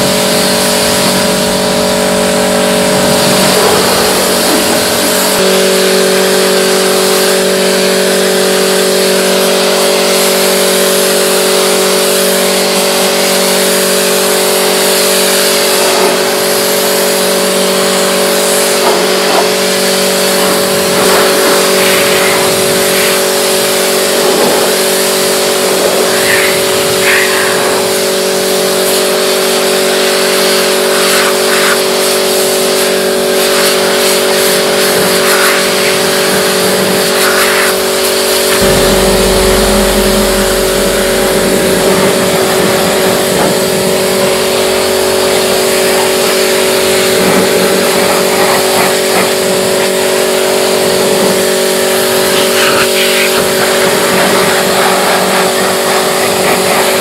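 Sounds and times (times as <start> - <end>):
pressure washer motor hum: 0.0 - 57.0.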